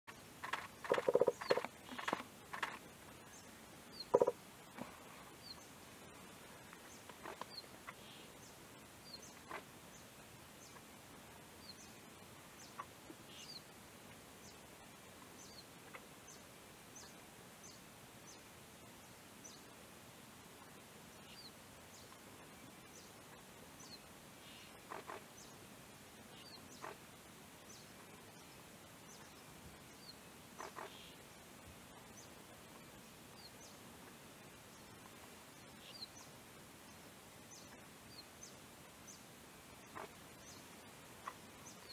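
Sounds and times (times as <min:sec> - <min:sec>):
pheasant pecking and scratching: 0:00.1 - 0:03.2, 0:04.0 - 0:05.1, 0:06.6 - 0:08.2, 0:09.4 - 0:09.8, 0:24.7 - 0:25.4, 0:30.6 - 0:31.1.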